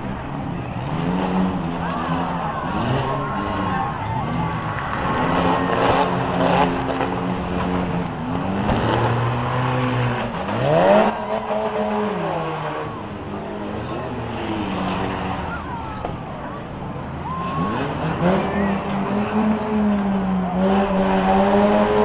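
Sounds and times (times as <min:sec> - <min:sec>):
car engines revving: 0:00.0 - 0:22.0.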